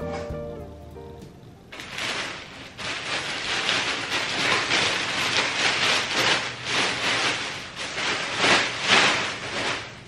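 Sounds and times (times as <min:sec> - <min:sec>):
plastic air pillows crinkling: 0:01.7 - 0:10.0.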